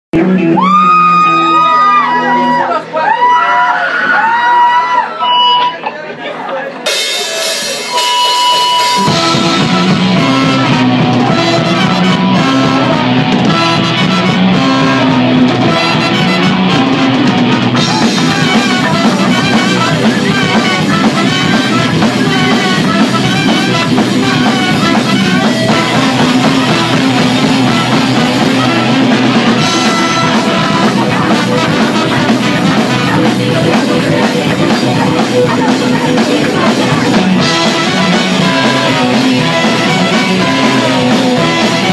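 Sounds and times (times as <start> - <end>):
electric bass: 0.1 - 2.6, 7.8 - 41.9
drum kit: 0.2 - 3.4, 6.7 - 41.9
electric guitar: 0.2 - 3.4, 6.9 - 41.9
trombones and trumpet: 7.8 - 34.2, 36.5 - 41.9.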